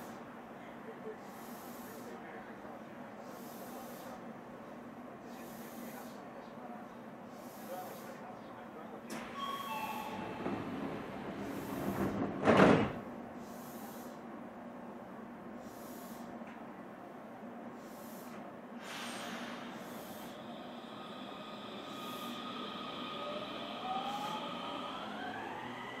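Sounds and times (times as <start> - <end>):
sliding train doors closing: 9.1 - 13.2, 18.4 - 26.0
door slam: 12.3 - 13.0
short hiss: 18.2 - 20.3.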